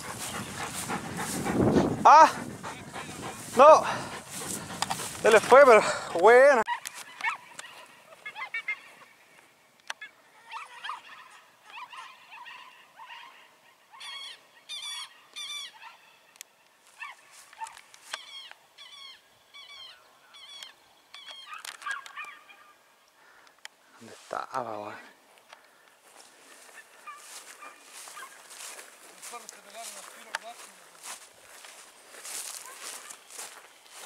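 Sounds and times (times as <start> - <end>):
faint high-pitched animal calls: 10.0 - 16.2, 18.2 - 22.8.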